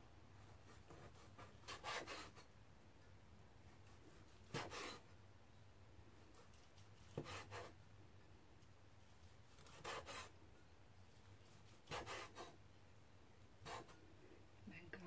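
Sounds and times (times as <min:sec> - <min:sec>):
cleaver cutting onto wooden board: 0:00.7 - 0:02.4, 0:04.5 - 0:05.0, 0:07.1 - 0:07.7, 0:09.6 - 0:10.3, 0:11.9 - 0:12.6.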